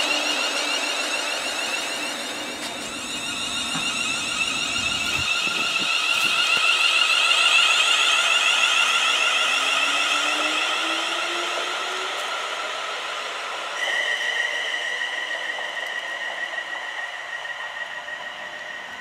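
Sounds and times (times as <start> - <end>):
low whine rising in pitch: 0.0 - 19.0
train high-pitched squeal: 0.0 - 19.0
wheels knocking: 1.7 - 7.7.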